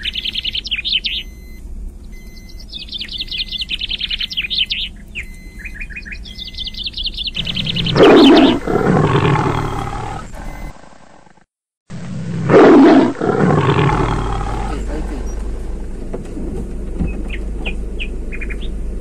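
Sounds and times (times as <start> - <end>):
birds trilling chirps: 0.0 - 10.8, 12.8 - 15.5, 17.0 - 18.9
deep animal roar: 7.4 - 11.4, 12.0 - 15.4
animal growling: 7.4 - 15.4.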